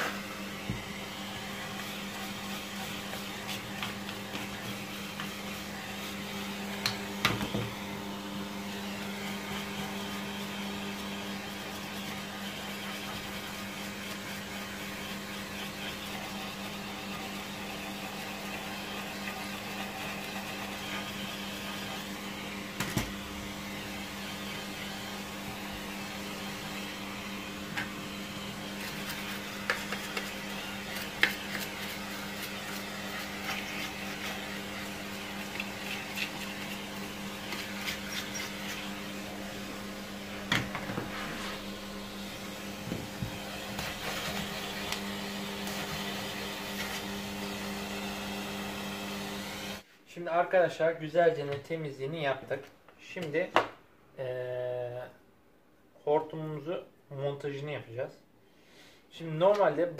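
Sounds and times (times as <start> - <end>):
vacuum cleaner motor humming: 0.0 - 49.8.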